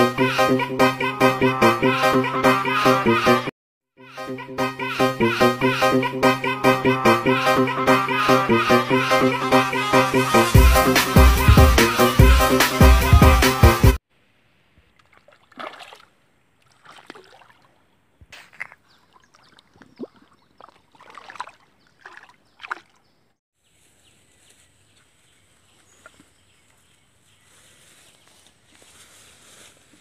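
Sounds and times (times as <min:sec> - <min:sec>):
river water splashing: 0:14.9 - 0:23.1.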